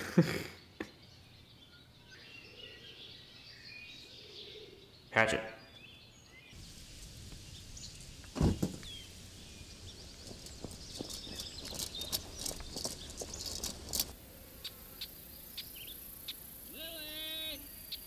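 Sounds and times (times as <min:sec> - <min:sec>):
birds chirping faintly: 0:00.1 - 0:18.0
footsteps crunching on grass: 0:06.6 - 0:14.1
wooden door thumping shut: 0:08.3 - 0:08.9.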